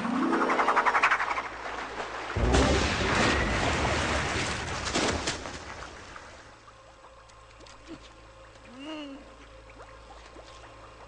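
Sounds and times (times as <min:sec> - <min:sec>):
loud rushing blast with rumble: 0:02.4 - 0:04.9.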